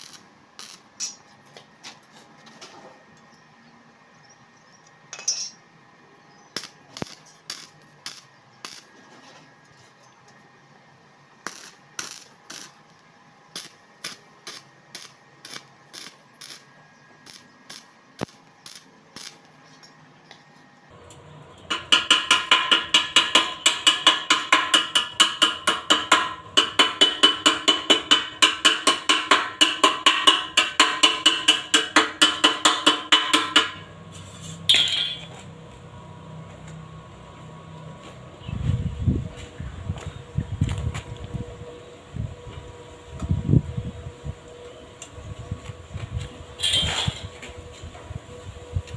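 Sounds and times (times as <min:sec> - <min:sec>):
hand tool tapping steel frame: 0:21.7 - 0:33.9
loud metal knock: 0:21.7 - 0:33.9.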